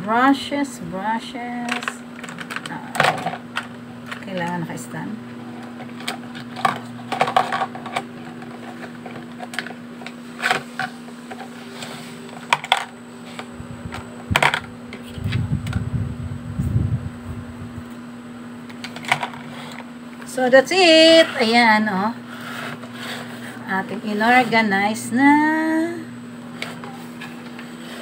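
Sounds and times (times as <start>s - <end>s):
steady low hum: 0.0s - 28.0s
low rumble: 13.5s - 18.0s.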